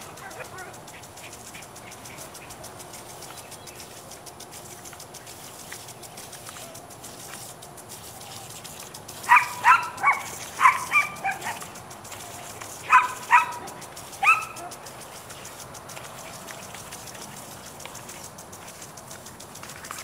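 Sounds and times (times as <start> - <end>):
dog barking in high yaps: 9.2 - 11.7, 12.8 - 14.8.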